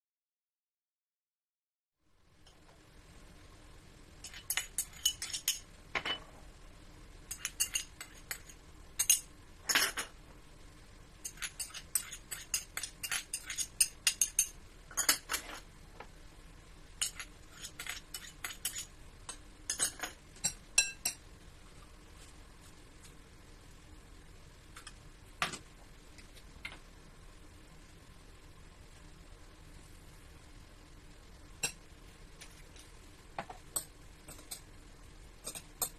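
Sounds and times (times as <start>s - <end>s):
metal spoon clinking on dishes: 4.2s - 6.2s, 7.3s - 10.1s, 11.2s - 15.6s, 17.0s - 21.2s, 33.7s - 34.7s, 35.4s - 35.9s.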